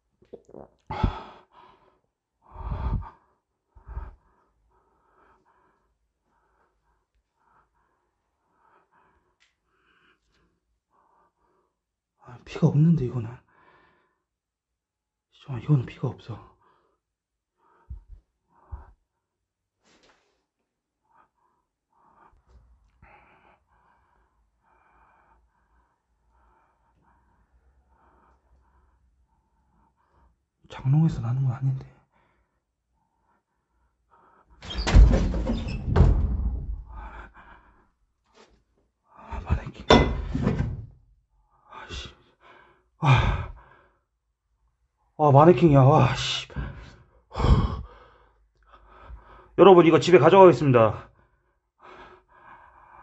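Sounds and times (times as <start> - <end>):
soft breathing: 0.5 - 11.8
man breathing heavily: 0.9 - 11.8, 21.0 - 30.4, 36.8 - 38.0, 41.6 - 44.2, 46.5 - 49.6, 51.1 - 53.0.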